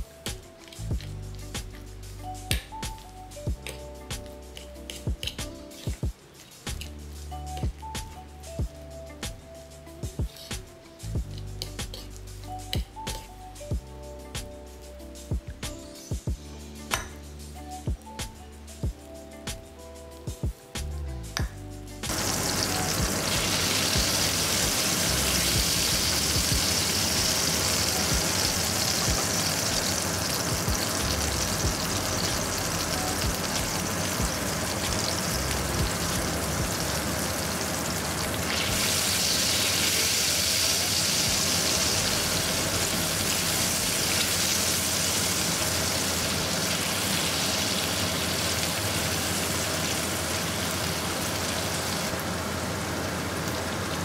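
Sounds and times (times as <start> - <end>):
butter and garlic sizzling in a pan: 22.1 - 54.0.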